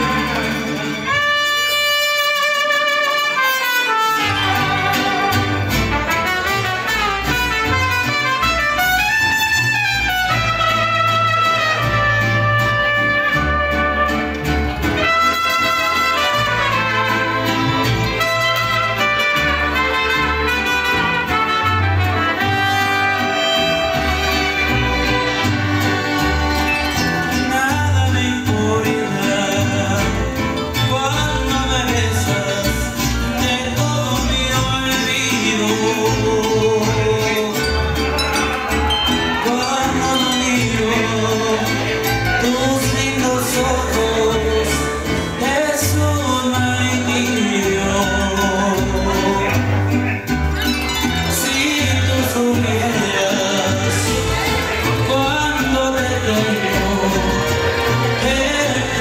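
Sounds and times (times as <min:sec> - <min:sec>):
trumpets playing melody: 0:00.0 - 0:27.3
bass guitar: 0:00.0 - 0:59.0
strummed guitars: 0:00.0 - 0:59.0.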